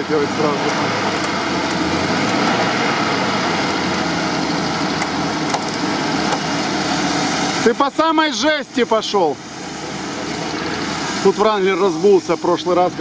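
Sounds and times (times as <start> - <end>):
engine running under load: 0.0 - 13.0.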